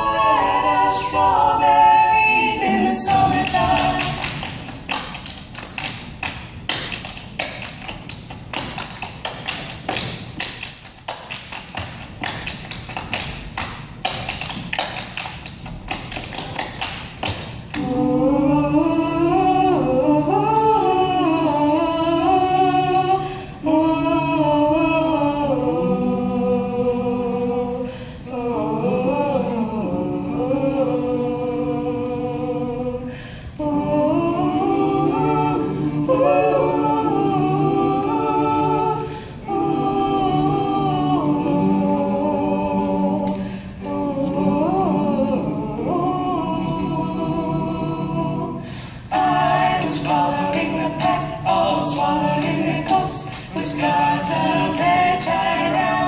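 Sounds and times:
wordless close harmony singing: 0:00.0 - 0:04.4, 0:17.8 - 0:56.0
body percussion claps and pats: 0:03.1 - 0:17.8.

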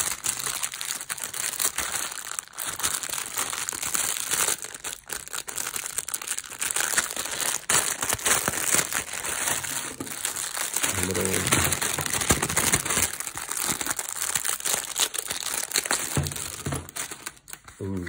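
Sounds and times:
cellophane crinkling: 0:00.0 - 0:18.0.

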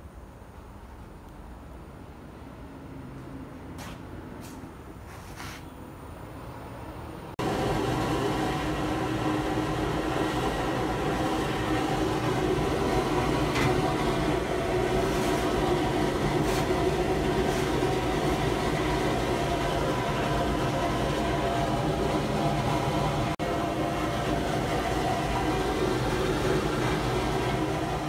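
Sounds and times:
blast cabinet mechanical drone: 0:07.4 - 0:28.0.

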